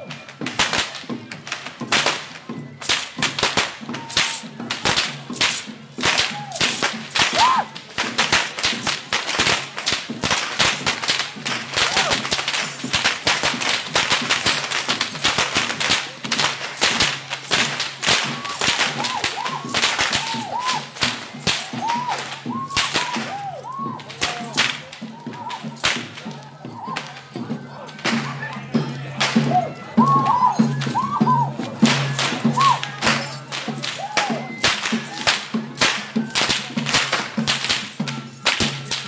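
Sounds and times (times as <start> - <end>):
whips cracking: 0.6 - 24.8, 25.4 - 26.2, 31.9 - 39.0
short whistle-like notes: 18.1 - 24.6, 30.0 - 33.4, 34.0 - 35.4.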